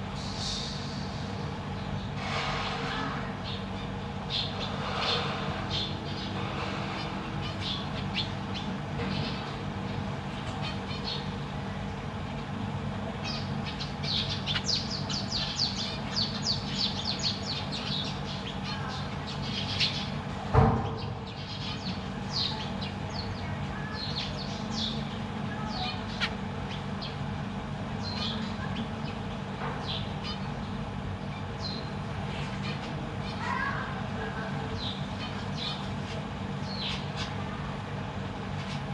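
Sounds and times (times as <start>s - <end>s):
steady low hum: 0.0s - 38.9s
finches chirping: 13.2s - 20.2s.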